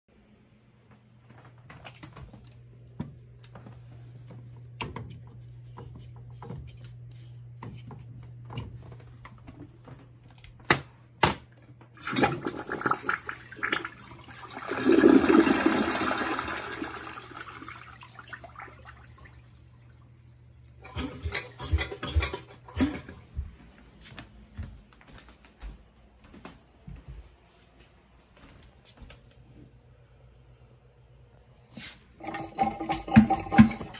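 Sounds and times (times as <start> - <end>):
toilet flushing water swirling: 12.0 - 21.3, 32.2 - 33.9
knocks and clatter: 20.8 - 23.3, 32.3 - 33.9.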